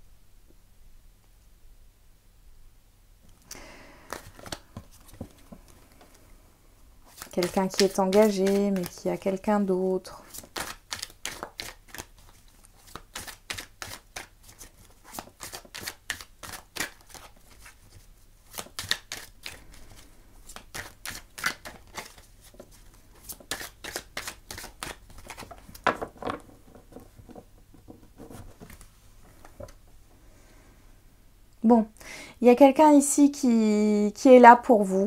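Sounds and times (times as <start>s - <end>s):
cards being shuffled: 3.5s - 6.2s, 7.0s - 9.3s, 10.2s - 29.8s.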